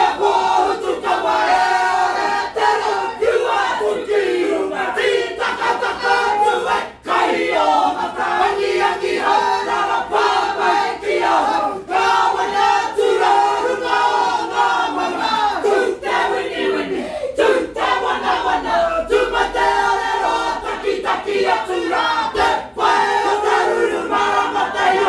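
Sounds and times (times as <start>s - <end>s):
group chanting in unison: 0.0s - 25.0s.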